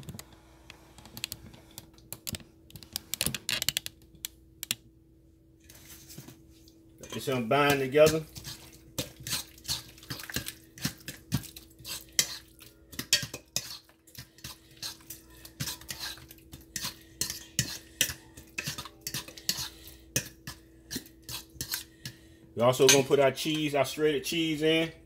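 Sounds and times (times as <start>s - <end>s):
utensil scraping metal bowl: 7.0s - 22.2s.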